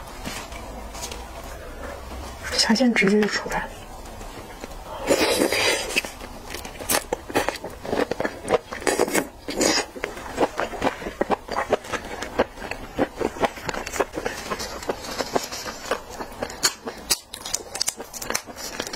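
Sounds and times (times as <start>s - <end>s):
slurping: 5.0s - 6.2s.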